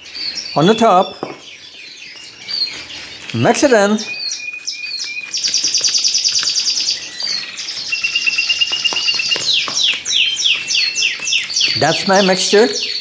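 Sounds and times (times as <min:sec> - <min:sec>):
small birds singing: 0:00.0 - 0:13.0.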